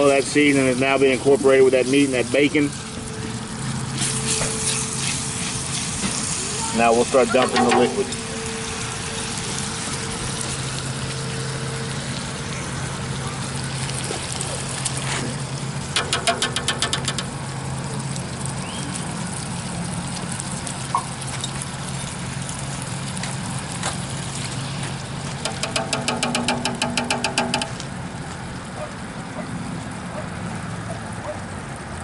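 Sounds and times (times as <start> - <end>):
rapid sharp taps: 16.0 - 17.3, 25.4 - 27.9.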